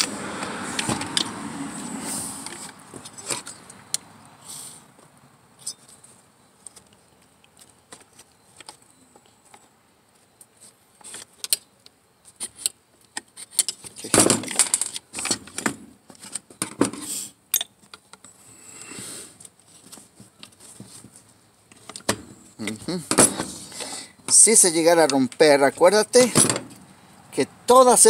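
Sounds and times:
chainsaw parts clicking and rattling: 0:12.4 - 0:15.6.

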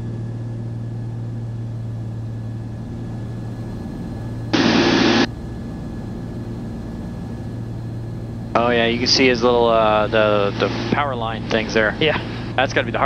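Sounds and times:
aircraft engines droning: 0:00.0 - 0:13.0
loud burst of sound: 0:04.5 - 0:05.3.

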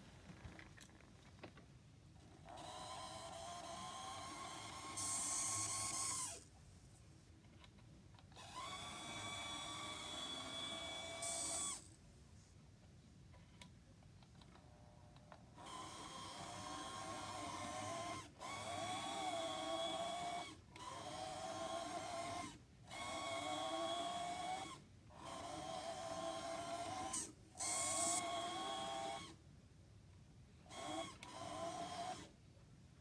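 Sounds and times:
model train motor whining: 0:02.3 - 0:06.5, 0:08.3 - 0:12.0, 0:15.0 - 0:29.4, 0:30.6 - 0:32.4.

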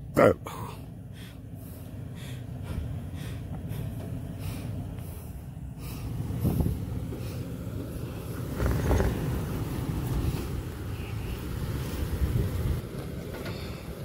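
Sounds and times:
engine running at low revs: 0:00.0 - 0:14.0.

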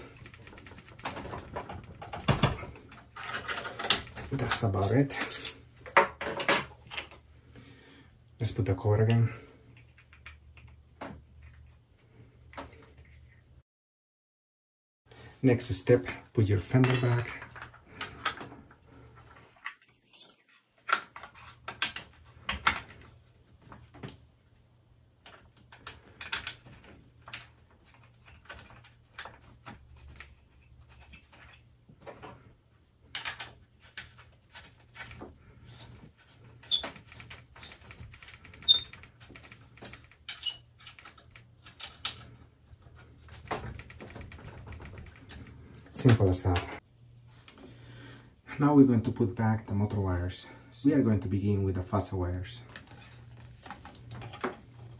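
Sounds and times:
plastic and metal parts clicking: 0:33.1 - 0:46.0.

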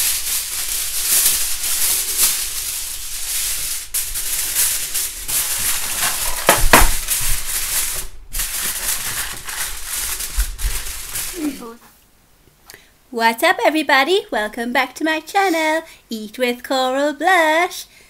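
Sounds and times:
aluminium foil crinkling: 0:00.0 - 0:11.7.

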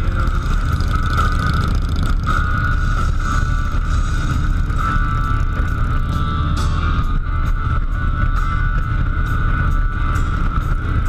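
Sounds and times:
high whine: 0:00.0 - 0:11.0
vehicle engine low rumble: 0:00.0 - 0:11.0.

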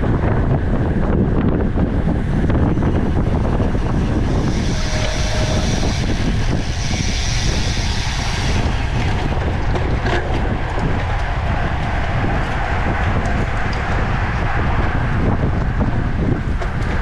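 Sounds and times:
wind buffeting microphone: 0:00.0 - 0:17.0
high hiss: 0:03.7 - 0:09.0.

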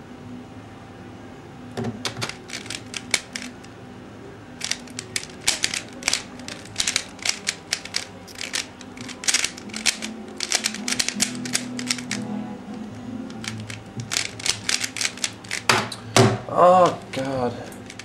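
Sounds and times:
puzzle cube plastic clicks: 0:02.1 - 0:03.7, 0:04.6 - 0:12.2, 0:13.3 - 0:15.7, 0:17.8 - 0:18.0.

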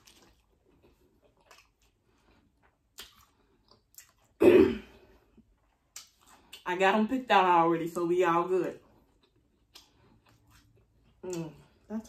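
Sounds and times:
person chewing food: 0:00.0 - 0:06.7, 0:08.8 - 0:11.9
wet mouth clicks: 0:02.9 - 0:04.2, 0:05.9 - 0:06.6.

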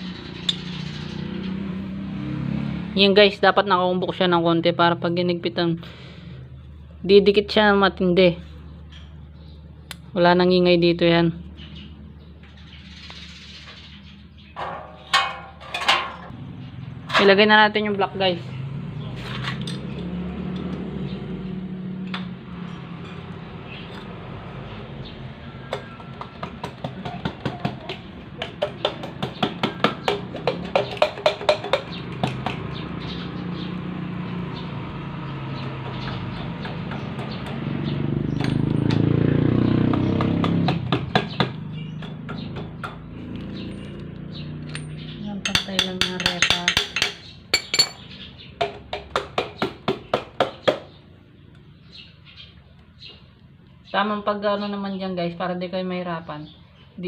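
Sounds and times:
metal tool clinking on engine: 0:44.6 - 0:48.1.

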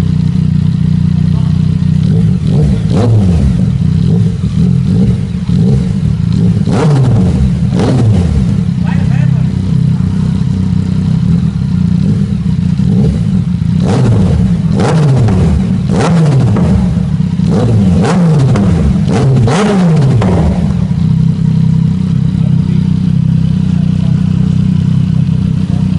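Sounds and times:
motorcycle engine idling and revving: 0:00.0 - 0:25.9
exhaust pops: 0:14.0 - 0:21.4.

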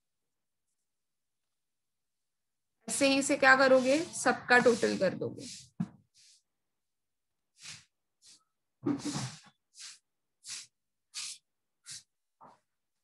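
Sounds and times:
person puffing breath: 0:07.6 - 0:12.1.

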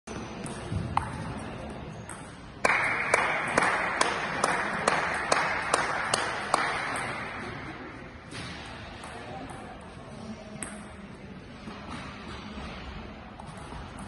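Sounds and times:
table tennis ball struck: 0:02.1 - 0:07.5
group clapping in rhythm: 0:02.6 - 0:07.2.

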